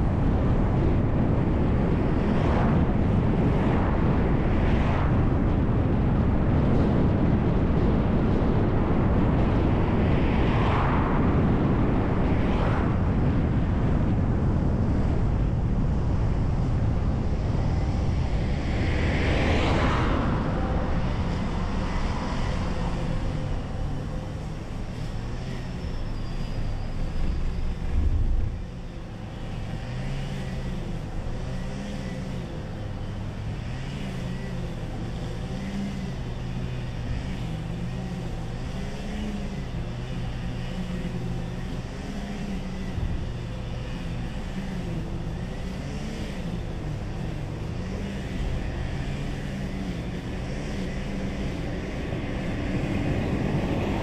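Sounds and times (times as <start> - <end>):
bus driving: 13.3 - 54.0
cars passing: 17.2 - 54.0.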